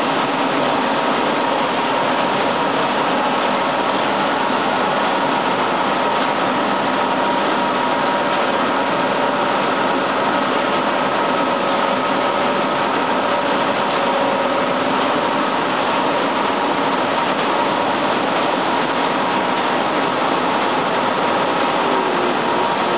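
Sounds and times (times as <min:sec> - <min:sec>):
industrial machinery din: 0:11.0 - 0:22.9.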